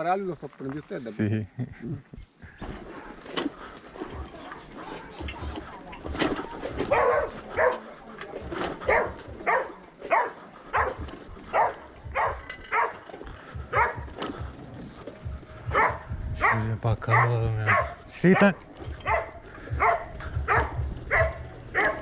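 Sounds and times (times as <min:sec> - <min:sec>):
dog barking: 0:06.6 - 0:08.0, 0:08.6 - 0:13.0, 0:13.6 - 0:14.2, 0:15.7 - 0:22.0.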